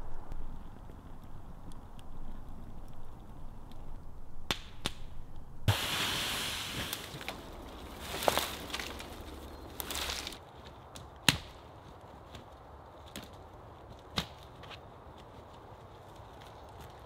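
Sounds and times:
branches and twigs rustling: 0:00.0 - 0:17.0
dry sticks snapping: 0:04.4 - 0:05.5, 0:06.9 - 0:11.6.

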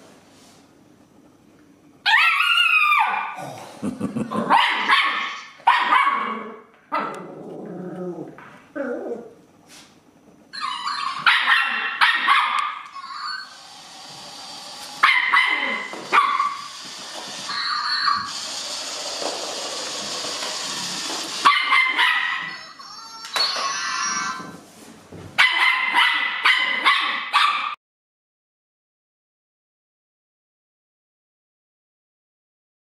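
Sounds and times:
puppy barking and yipping: 0:04.5 - 0:07.1, 0:10.6 - 0:13.5, 0:15.0 - 0:16.8, 0:21.4 - 0:22.6, 0:25.4 - 0:27.8.

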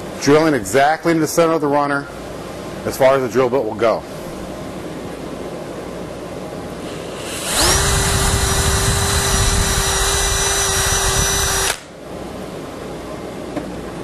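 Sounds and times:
cordless drill boring into wood: 0:06.9 - 0:11.8.

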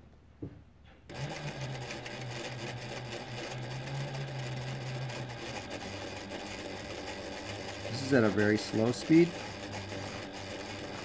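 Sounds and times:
sewing machine clattering: 0:01.1 - 0:11.0.

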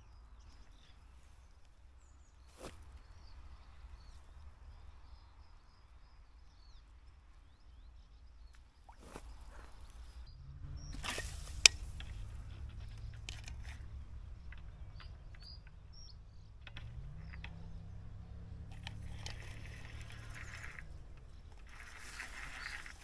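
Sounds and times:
faint bird chirps: 0:00.0 - 0:23.0
low steady hum: 0:00.0 - 0:23.0
soft rustling: 0:00.6 - 0:04.6, 0:18.0 - 0:23.0.

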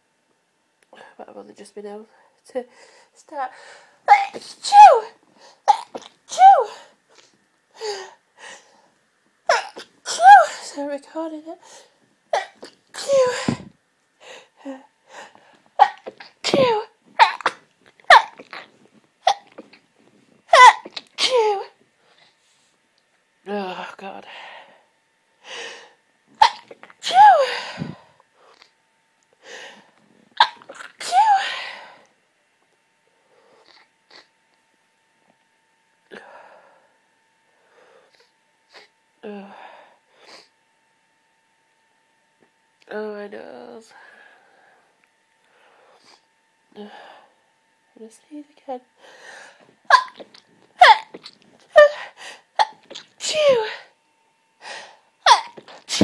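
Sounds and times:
person sneezing: 0:04.1 - 0:06.9, 0:09.5 - 0:10.6, 0:12.4 - 0:13.7, 0:15.8 - 0:19.8, 0:20.5 - 0:21.7, 0:26.4 - 0:28.6, 0:30.4 - 0:31.9, 0:49.9 - 0:53.9, 0:55.3 - 0:56.0
woman breathing sharply: 0:24.3 - 0:26.0, 0:43.9 - 0:46.2, 0:49.0 - 0:49.7, 0:54.6 - 0:55.1.

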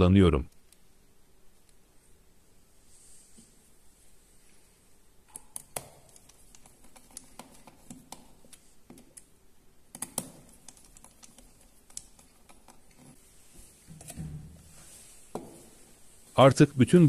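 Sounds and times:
fingers clicking plastic connector: 0:09.9 - 0:12.8.

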